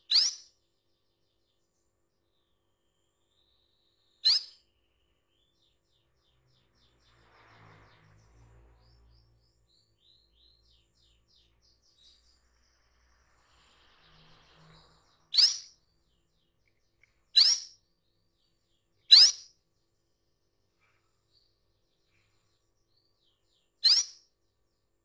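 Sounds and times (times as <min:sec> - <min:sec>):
canary sharp calls: 0:00.0 - 0:00.5, 0:04.2 - 0:04.6, 0:15.3 - 0:15.7, 0:17.4 - 0:17.8, 0:19.1 - 0:19.5, 0:23.8 - 0:24.2
canary soft twittering: 0:00.0 - 0:00.5, 0:04.2 - 0:05.1, 0:10.0 - 0:15.9, 0:16.6 - 0:17.8, 0:19.1 - 0:19.5, 0:23.8 - 0:24.2.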